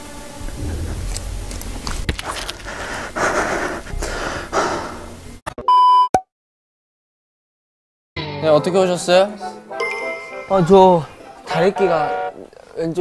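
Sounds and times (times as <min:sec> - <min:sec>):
man breathing heavily: 0:02.2 - 0:05.4.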